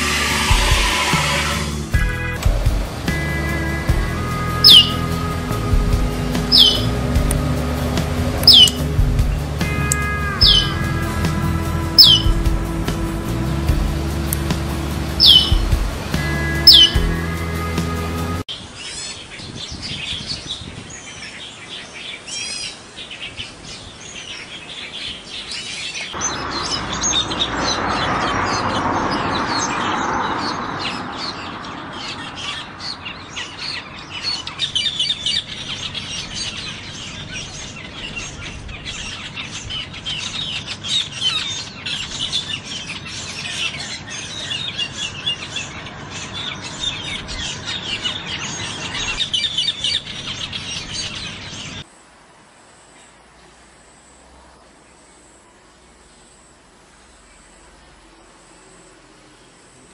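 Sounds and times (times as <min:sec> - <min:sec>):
rushing noise: 0:00.0 - 0:18.5, 0:26.2 - 0:32.3
starlings chirping: 0:00.0 - 0:52.0.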